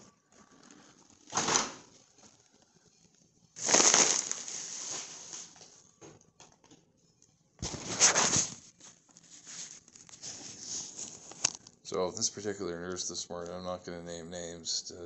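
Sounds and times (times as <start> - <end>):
fabric rustling on microphone: 7.6 - 11.6.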